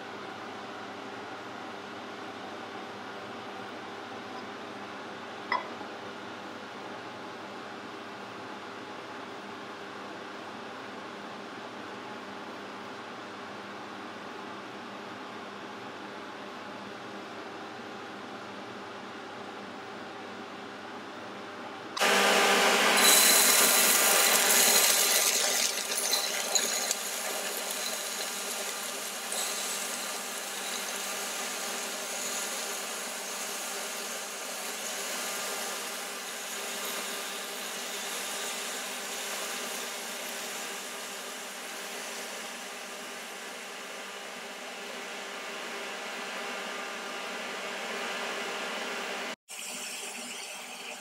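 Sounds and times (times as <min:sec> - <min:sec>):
beef sizzling in hot oil: 0:22.9 - 0:42.4.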